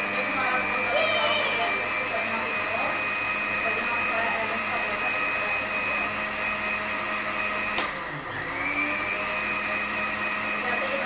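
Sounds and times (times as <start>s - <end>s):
electric blender motor running: 0.0s - 11.0s
blender click: 7.7s - 8.1s.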